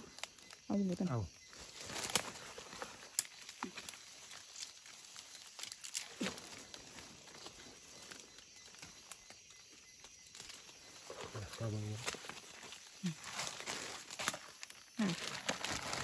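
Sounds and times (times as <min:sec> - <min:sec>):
dry leaves rustling underfoot: 0:01.5 - 0:16.0
small twigs snapping: 0:01.8 - 0:07.7, 0:13.4 - 0:14.8.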